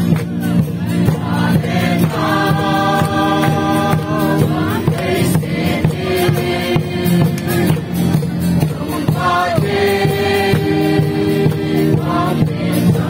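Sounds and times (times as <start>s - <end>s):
steady beat: 0.0s - 13.0s
congregation singing gospel song: 0.9s - 13.0s.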